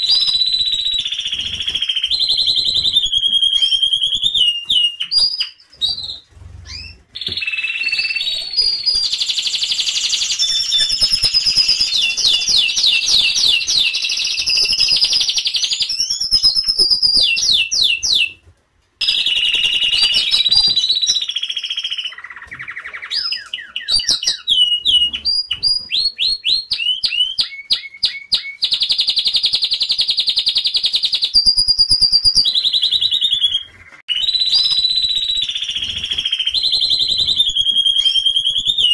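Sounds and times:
canary singing trills: 0.0s - 18.4s, 19.0s - 38.9s.

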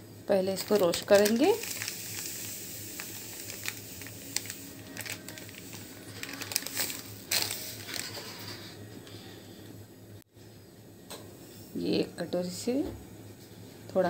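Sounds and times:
semolina crackling in hot pan: 0.3s - 8.4s
faint hiss: 0.6s - 7.8s.

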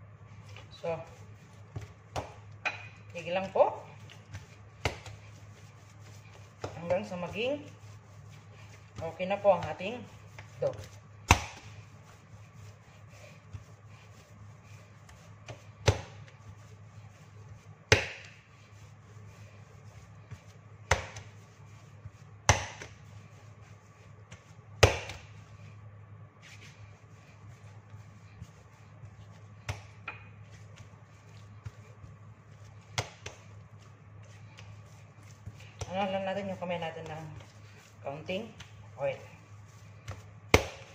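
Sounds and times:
dough pressing and rubbing: 0.0s - 40.9s
dough slapped on countertop: 11.2s - 11.7s, 17.9s - 18.4s, 20.8s - 21.3s, 22.4s - 23.0s, 24.3s - 25.4s, 29.6s - 30.2s, 32.9s - 33.5s, 40.0s - 40.9s.

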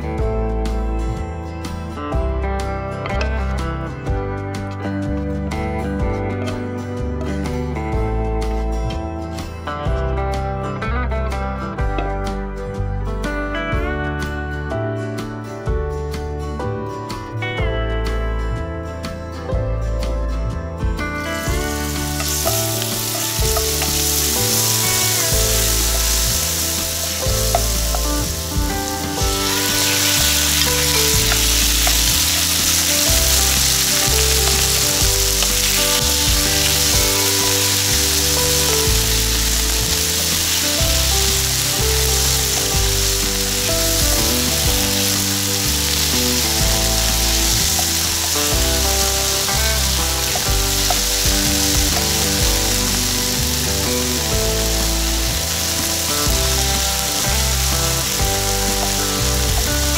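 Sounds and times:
food sizzling in hot oil: 21.4s - 59.9s.

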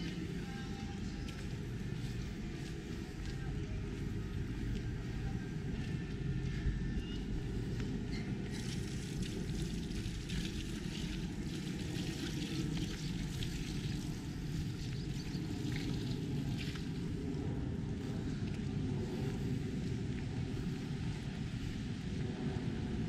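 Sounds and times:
wind noise on microphone: 0.0s - 23.0s.

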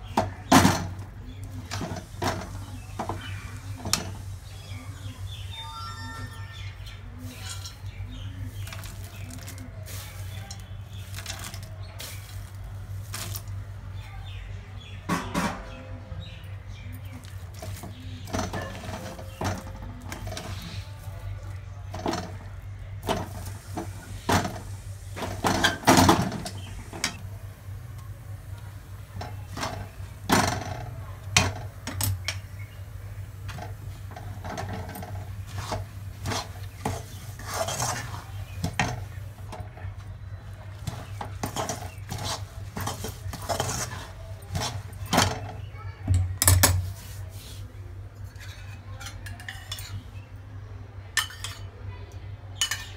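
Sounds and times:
spatula scraping a metal pan: 33.4s - 39.5s, 40.8s - 45.6s.

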